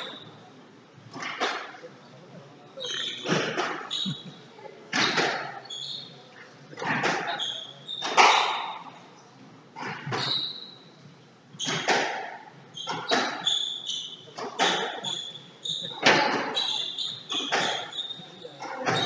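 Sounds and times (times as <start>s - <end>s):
shoes squeaking on wooden floor: 2.8s - 4.3s, 6.8s - 8.5s, 9.8s - 10.8s, 12.7s - 19.0s
squash ball struck by rackets: 11.6s - 13.4s, 14.5s - 15.0s.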